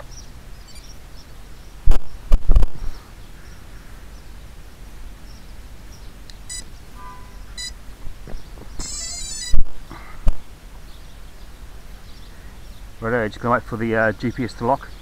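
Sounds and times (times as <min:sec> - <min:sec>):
quadcopter start-up beeps: 0:06.5 - 0:06.7, 0:07.6 - 0:07.8, 0:08.8 - 0:09.6.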